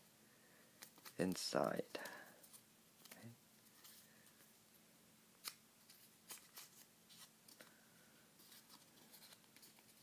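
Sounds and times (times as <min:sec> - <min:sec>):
paper being folded and creased: 0:05.4 - 0:07.3, 0:08.4 - 0:10.0.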